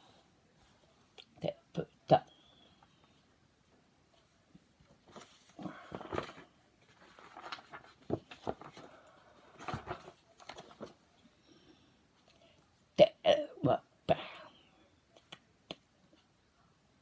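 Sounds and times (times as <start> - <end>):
book pages rustling: 4.1 - 11.3.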